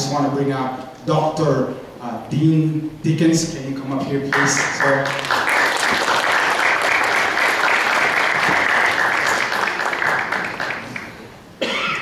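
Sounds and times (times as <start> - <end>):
congregation applauding: 4.3 - 11.4.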